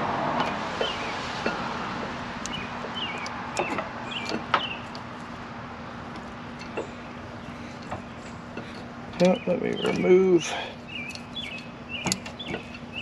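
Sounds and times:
steady low hum: 0:00.0 - 0:13.0
birds chirping: 0:00.4 - 0:13.0
metal clicks: 0:02.4 - 0:05.1.

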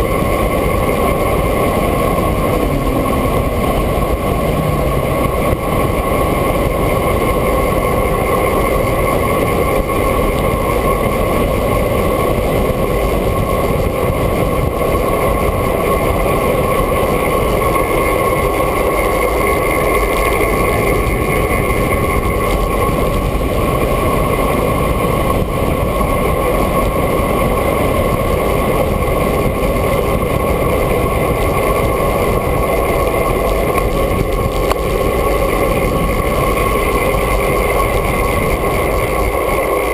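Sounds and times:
wind rushing over camera: 0:00.0 - 0:39.9.

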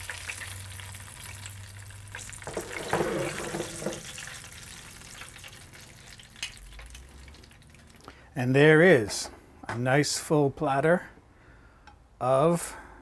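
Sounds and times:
chicken sizzling in oil: 0:00.0 - 0:08.0.

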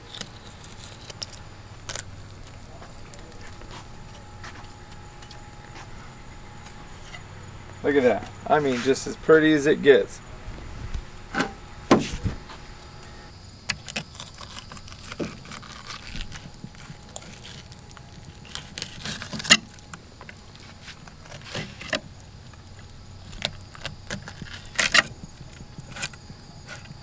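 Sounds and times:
sharp knock: 0:11.4 - 0:12.3.

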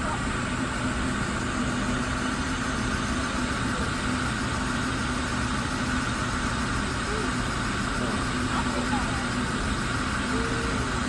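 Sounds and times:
high steady whir: 0:00.0 - 0:11.0
low mechanical drone: 0:00.0 - 0:11.0.

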